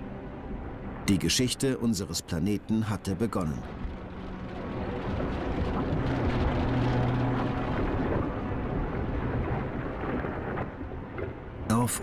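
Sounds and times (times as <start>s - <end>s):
lava fountain rumbling: 3.5s - 11.8s.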